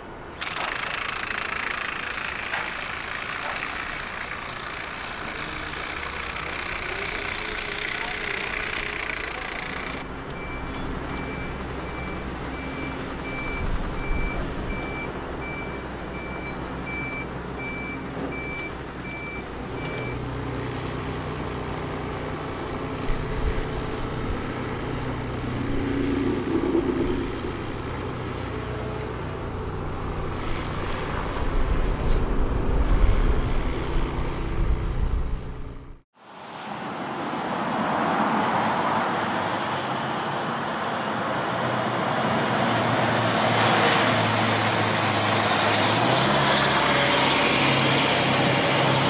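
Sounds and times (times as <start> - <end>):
diesel engine rumbling: 0.0 - 36.0
reversing alarm beeping: 9.1 - 20.2.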